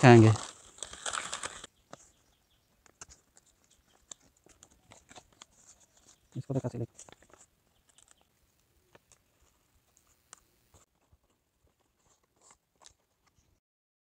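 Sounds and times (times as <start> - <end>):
leaf crinkling and snapping: 0.0 - 2.1, 2.8 - 8.3.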